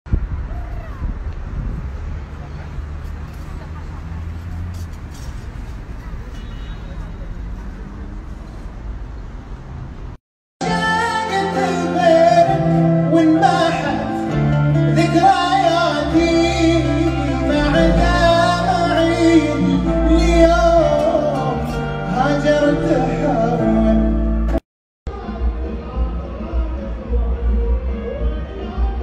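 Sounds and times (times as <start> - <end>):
man singing: 10.6 - 29.0.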